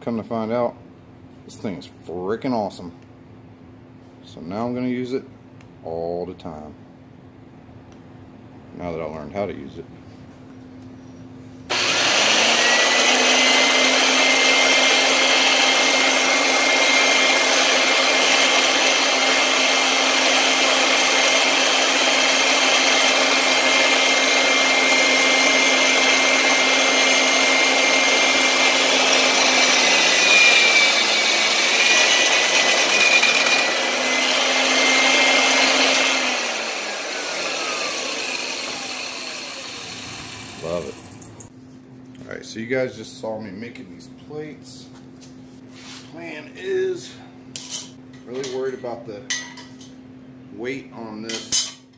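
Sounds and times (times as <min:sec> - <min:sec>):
drill press drilling steel: 0:11.7 - 0:41.5
motor whine spinning down: 0:33.0 - 0:41.5.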